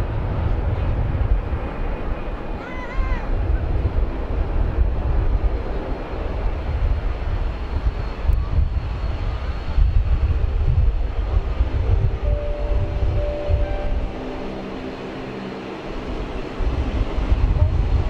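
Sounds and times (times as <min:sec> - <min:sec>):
jet engines rumbling: 0:00.0 - 0:18.0
faint high whine: 0:10.8 - 0:18.0.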